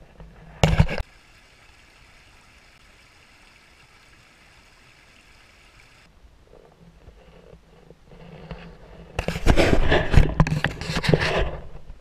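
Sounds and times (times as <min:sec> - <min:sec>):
brook running over rocks: 0:00.6 - 0:06.1.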